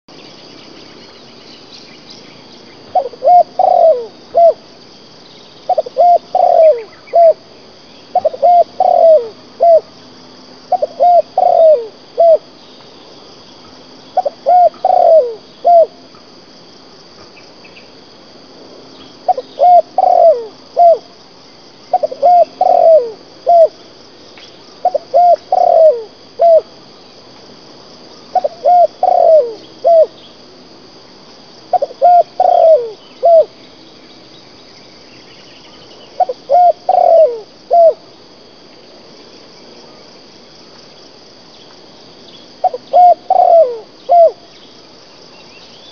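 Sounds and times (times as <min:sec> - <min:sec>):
dove cooing: 0:02.9 - 0:04.7, 0:05.7 - 0:07.5, 0:08.1 - 0:09.9, 0:10.7 - 0:12.5, 0:14.2 - 0:16.0, 0:19.2 - 0:21.1, 0:21.9 - 0:23.8, 0:24.8 - 0:26.8, 0:28.3 - 0:30.2, 0:31.7 - 0:33.6, 0:36.1 - 0:38.1, 0:42.6 - 0:44.5.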